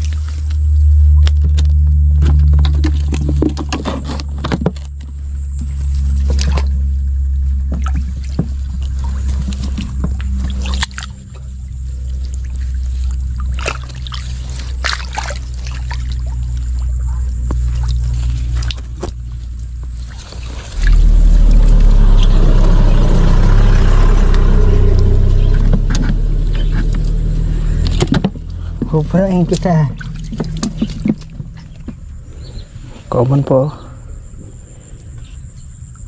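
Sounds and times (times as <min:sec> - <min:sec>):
low motor drone: 0:00.0 - 0:36.0
water splashing and dripping: 0:05.2 - 0:32.4
rough rushing noise: 0:20.4 - 0:28.8.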